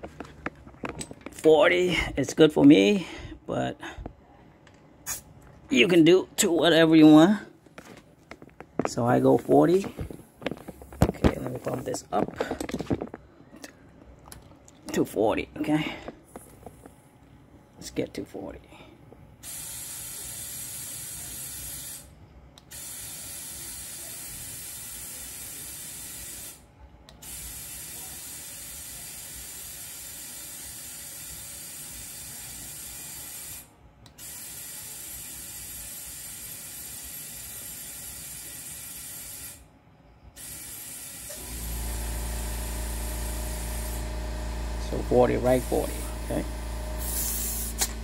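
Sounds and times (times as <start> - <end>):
compressed air hissing into tire: 19.4 - 22.1, 22.7 - 26.6, 27.2 - 39.7, 40.4 - 48.0
low motor hum: 41.3 - 48.0.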